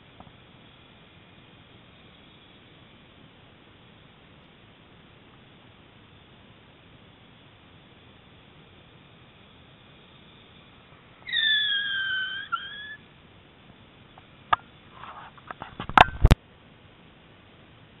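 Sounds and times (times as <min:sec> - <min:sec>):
sharp click: 0:15.4 - 0:16.4.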